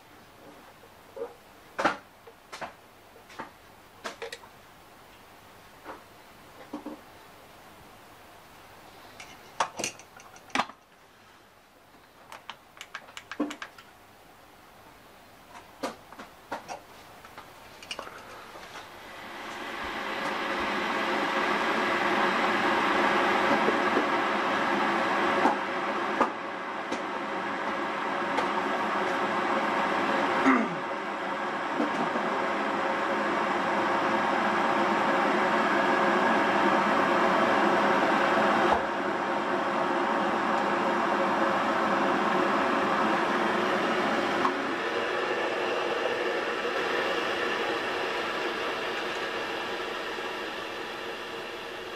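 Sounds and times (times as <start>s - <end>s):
kettle hissing: 7.9s - 11.5s, 15.8s - 25.3s, 40.1s - 51.9s
kettle ticks and pops: 12.3s - 13.9s.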